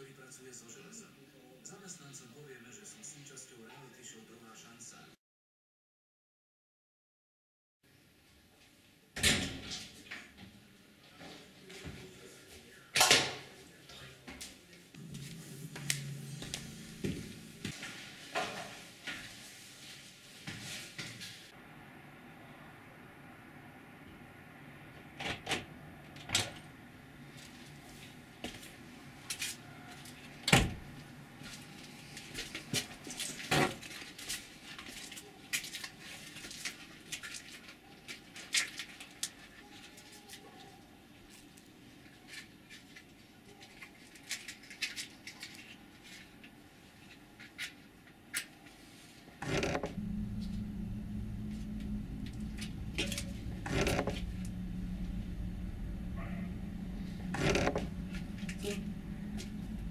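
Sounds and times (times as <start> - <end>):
steady low hum: 14.9 - 18.7, 21.5 - 33.2, 49.4 - 59.9.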